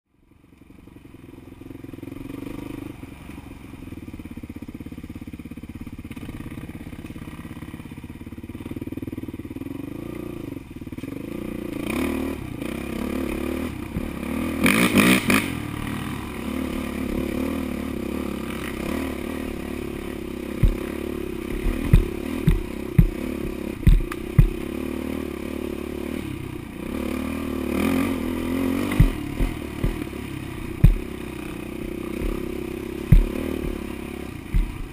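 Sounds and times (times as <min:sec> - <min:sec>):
dirt bike engine running: 0:00.3 - 0:34.9
bike thumping over bumps: 0:20.5 - 0:24.7, 0:28.7 - 0:34.9.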